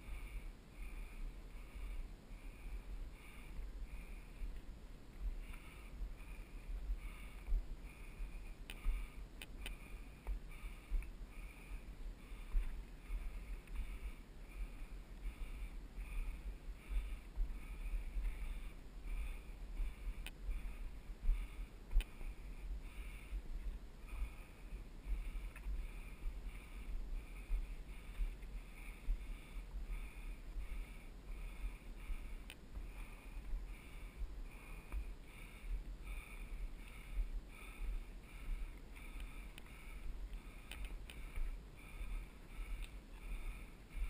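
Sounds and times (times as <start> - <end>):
heavy rhythmic breathing: 0.0 - 44.0
sharp clicks: 40.3 - 41.5.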